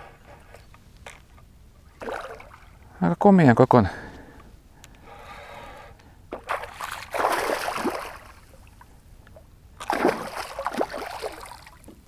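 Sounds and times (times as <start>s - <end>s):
fish splashing in water: 2.0s - 2.8s, 6.3s - 8.5s, 9.8s - 11.9s.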